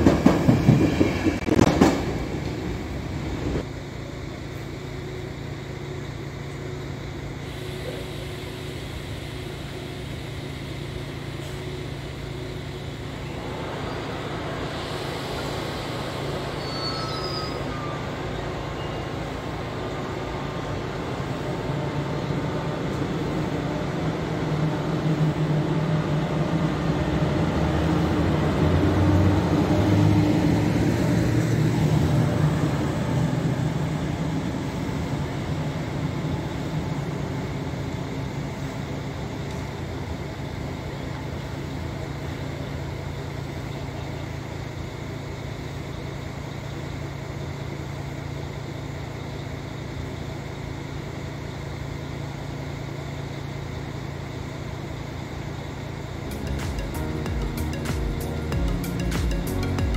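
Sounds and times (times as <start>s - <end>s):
train coaches rattling: 0.0s - 3.6s
electric locomotive humming: 0.0s - 59.9s.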